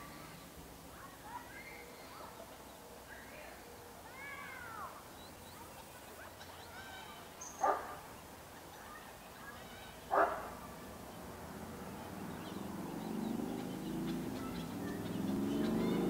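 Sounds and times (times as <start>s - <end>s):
low engine-like hum: 10.5s - 16.0s.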